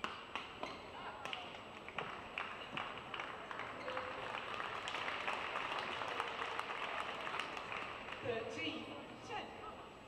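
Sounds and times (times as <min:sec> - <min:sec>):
crowd applauding: 0:01.3 - 0:08.2.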